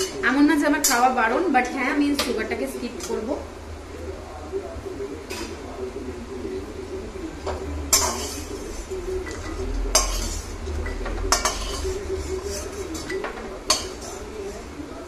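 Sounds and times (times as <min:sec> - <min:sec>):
metal spatula scraping a pan: 0:07.9 - 0:14.7.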